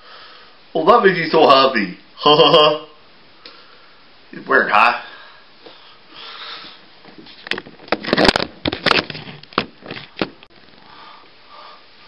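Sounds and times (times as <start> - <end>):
puppet handling knocks and clatters: 7.1 - 10.5.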